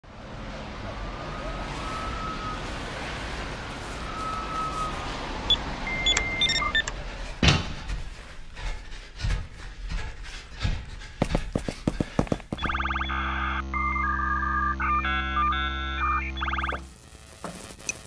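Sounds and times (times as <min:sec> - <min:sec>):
low city rumble: 0:00.0 - 0:16.4
electronic beeps and chirps: 0:05.9 - 0:06.9, 0:12.6 - 0:17.0.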